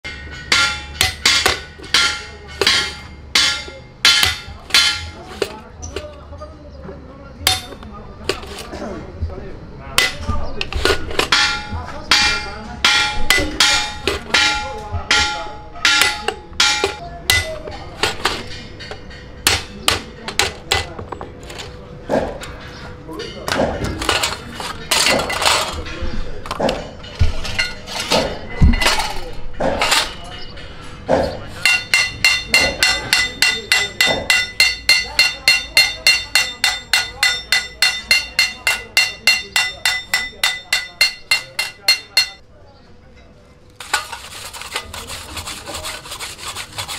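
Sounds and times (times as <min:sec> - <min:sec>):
hammer striking steel: 0:00.0 - 0:06.1, 0:07.5 - 0:08.7, 0:10.0 - 0:21.0, 0:31.1 - 0:42.4.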